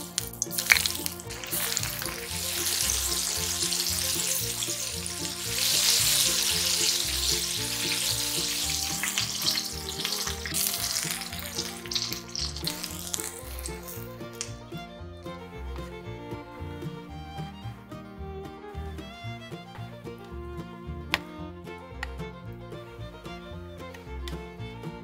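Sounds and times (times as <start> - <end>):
chicken deep-frying in oil: 0.0 - 14.5.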